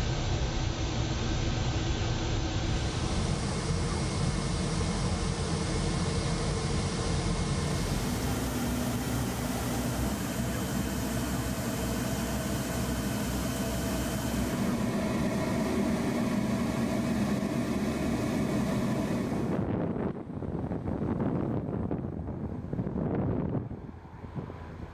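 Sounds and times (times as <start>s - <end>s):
hovercraft turbines droning: 0.0s - 24.9s.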